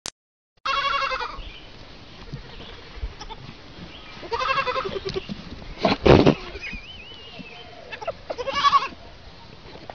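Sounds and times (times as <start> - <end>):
goat kid bleating: 0.6 - 1.4, 2.2 - 3.5, 4.2 - 5.3, 6.0 - 6.8, 7.6 - 9.0.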